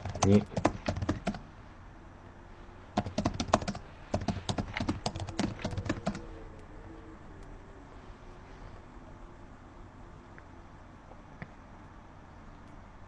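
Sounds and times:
computer keyboard typing: 0:00.0 - 0:01.4, 0:03.0 - 0:06.2
faint room hum: 0:00.0 - 0:13.0.

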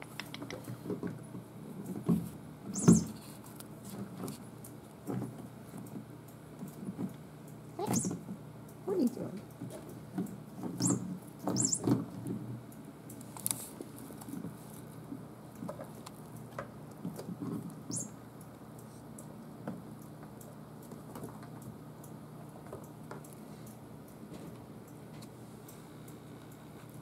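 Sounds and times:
kittens' paws pattering and scratching: 0:00.0 - 0:07.2, 0:09.0 - 0:19.1.

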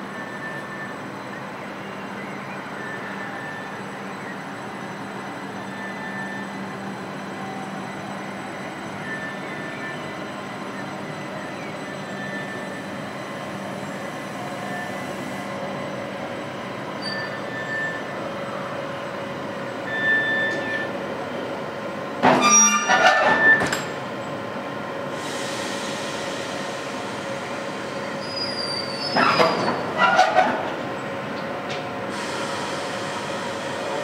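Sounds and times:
electric railcar hum: 0:00.0 - 0:34.0
metallic clanking and squealing: 0:17.0 - 0:18.0, 0:19.9 - 0:20.9, 0:22.2 - 0:23.9, 0:28.2 - 0:30.8.

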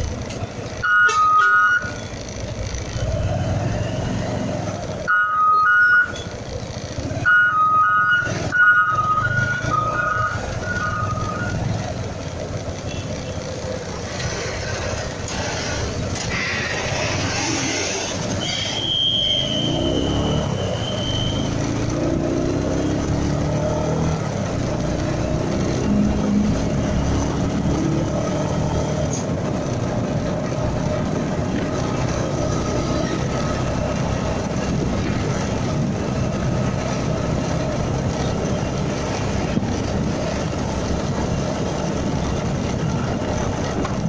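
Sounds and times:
road noise: 0:00.0 - 0:44.0
truck reversing beeps: 0:00.4 - 0:11.9, 0:14.2 - 0:24.3
motorcycle engine running: 0:01.8 - 0:05.1, 0:06.1 - 0:07.3, 0:08.0 - 0:44.0.

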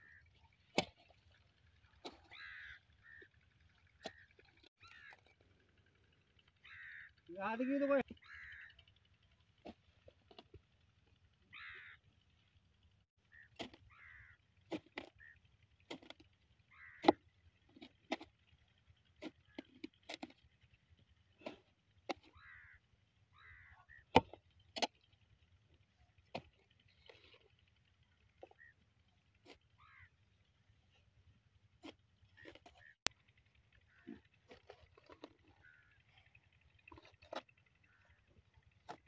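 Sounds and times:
crows cawing: 0:00.0 - 0:00.3, 0:01.9 - 0:05.4, 0:06.4 - 0:10.4, 0:11.4 - 0:12.1, 0:13.3 - 0:15.4, 0:16.0 - 0:17.3, 0:22.1 - 0:24.3, 0:28.4 - 0:28.8, 0:29.4 - 0:30.2, 0:33.8 - 0:38.4.

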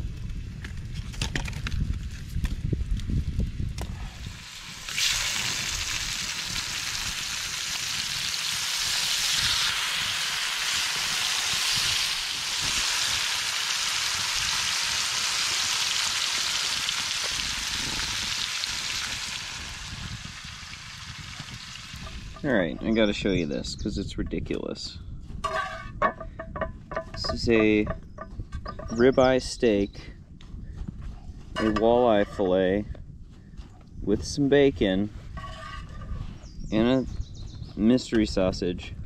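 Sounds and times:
food sizzling in a metal pan: 0:04.3 - 0:22.4.

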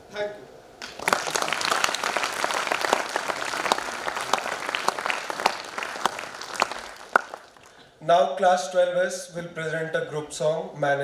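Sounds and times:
audience applauding: 0:00.8 - 0:07.8.

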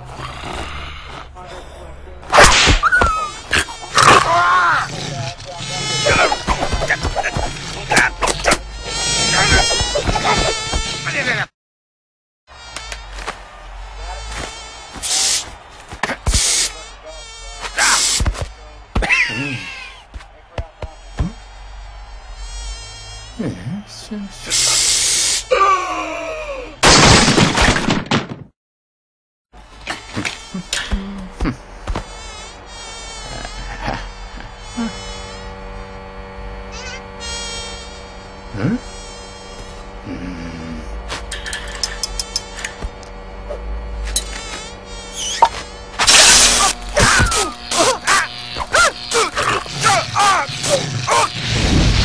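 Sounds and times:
cartoon housefly buzzing: 0:02.8 - 0:11.4, 0:12.5 - 0:20.1, 0:20.8 - 0:25.5, 0:30.0 - 0:52.0
loud bursts of rushing noise: 0:50.9 - 0:52.0.

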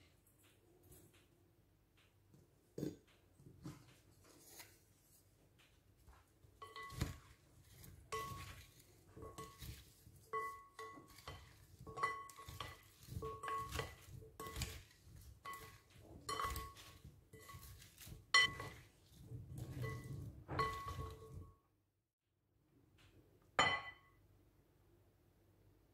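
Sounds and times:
wooden spoons knocking glass bowl: 0:06.5 - 0:21.5.

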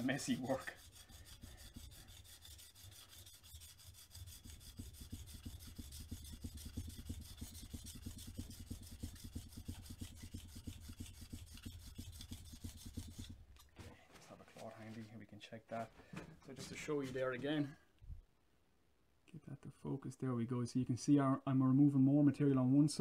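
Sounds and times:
blade scraping on sharpening plate: 0:00.0 - 0:13.4.

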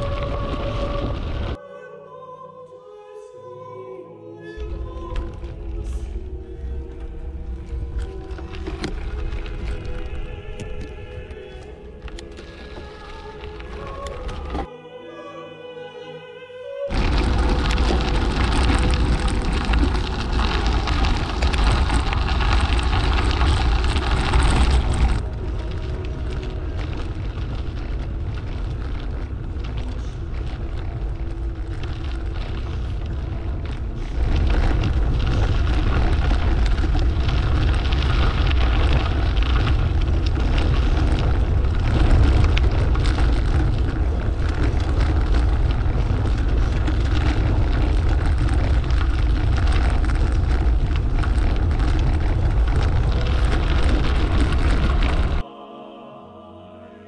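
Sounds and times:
wind buffeting microphone: 0:16.9 - 0:55.4.

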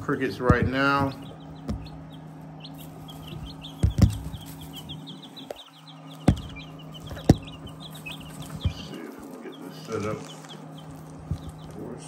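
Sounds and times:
sharp knocks: 0:00.0 - 0:09.0
chicks peeping: 0:00.0 - 0:12.0
steady low hum: 0:00.0 - 0:12.0.

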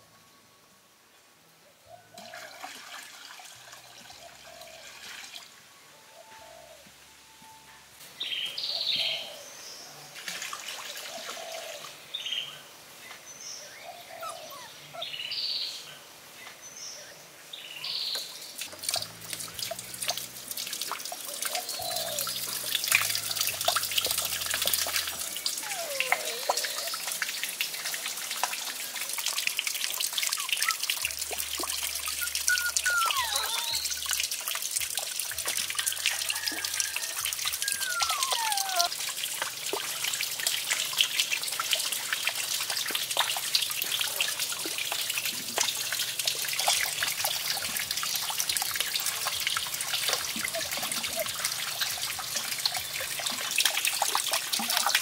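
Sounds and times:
water trickling and splashing: 0:01.9 - 0:05.8, 0:08.0 - 0:15.1, 0:16.2 - 0:55.0
birds calling: 0:13.4 - 0:15.7, 0:21.3 - 0:23.4, 0:24.4 - 0:27.6, 0:31.9 - 0:34.1, 0:37.5 - 0:38.9.

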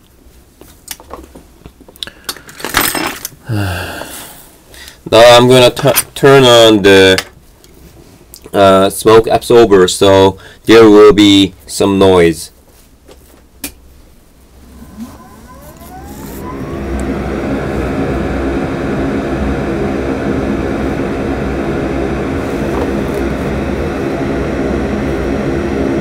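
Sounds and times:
extractor fan whirring: 0:14.4 - 0:26.0.

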